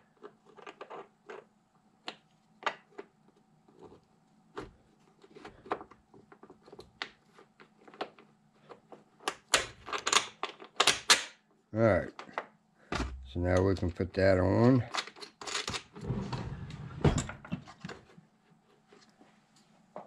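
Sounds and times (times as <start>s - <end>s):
small steel parts clicking and knocking: 5.7s - 11.4s, 14.8s - 16.0s.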